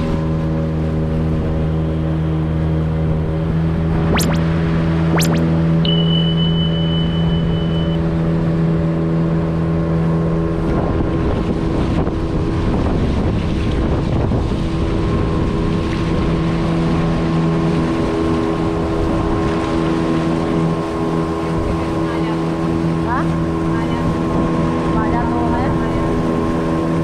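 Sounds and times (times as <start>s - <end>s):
outboard motor running: 0.0s - 27.0s
water rushing past hull: 0.0s - 27.0s
wind on microphone: 10.4s - 27.0s.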